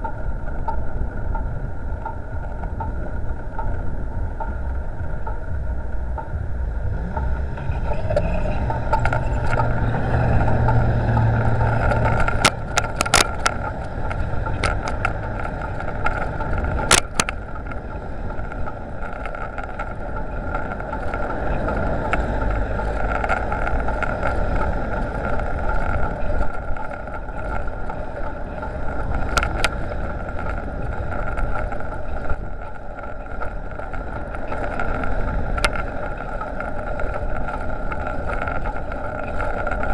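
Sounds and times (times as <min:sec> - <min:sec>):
wind and road rumble: 0:00.0 - 0:39.9
camera mount rattling: 0:11.8 - 0:17.4.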